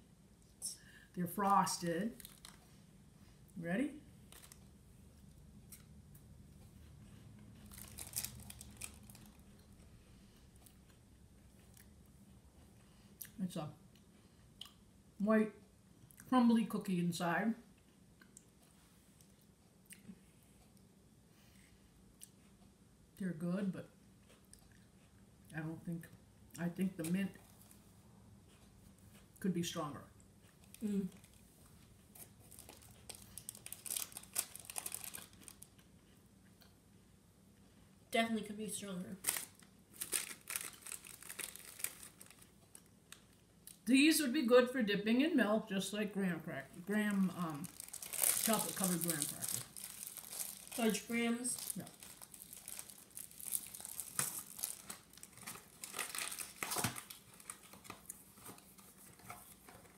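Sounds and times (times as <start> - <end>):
foil wrapper crinkling: 2.2 - 2.6, 4.3 - 4.7, 7.6 - 9.5, 32.4 - 35.8, 39.2 - 43.3, 46.8 - 59.9.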